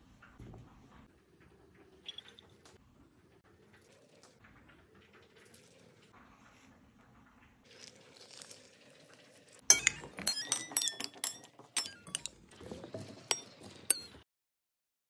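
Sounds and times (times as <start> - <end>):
metal spoons clinking on ceramic bowl: 9.7 - 12.4, 13.0 - 14.2.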